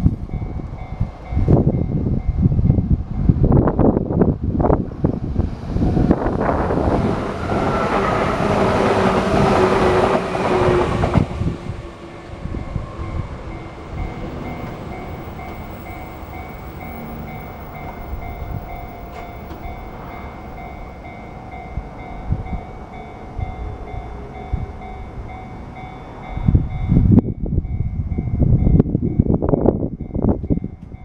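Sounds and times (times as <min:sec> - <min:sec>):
low rumble: 0:00.0 - 0:22.7
loud low gusty noise: 0:00.0 - 0:30.7
level crossing alarm ringing: 0:11.8 - 0:21.1.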